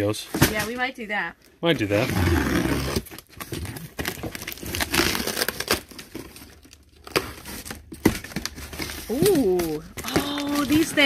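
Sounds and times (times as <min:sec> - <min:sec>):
packaging rustling and crinkling: 0:02.9 - 0:11.0.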